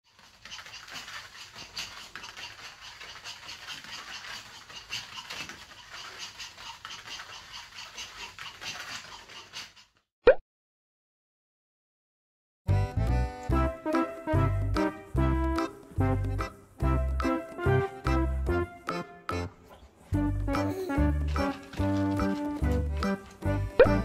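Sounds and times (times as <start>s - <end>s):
puppy paws pattering on foam mat: 0.1s - 10.0s, 19.7s - 24.0s.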